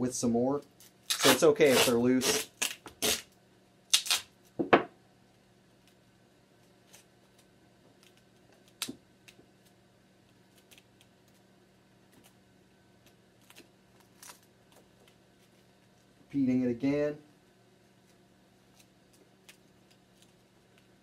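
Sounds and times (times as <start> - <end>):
duct tape ripping: 1.0 - 3.3, 3.9 - 4.3
tape crinkling and tapping: 6.6 - 11.5, 13.0 - 16.1, 18.0 - 21.0.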